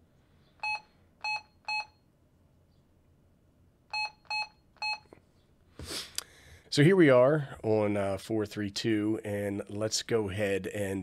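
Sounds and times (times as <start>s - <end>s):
radio key-press beeps: 3.9s - 5.1s.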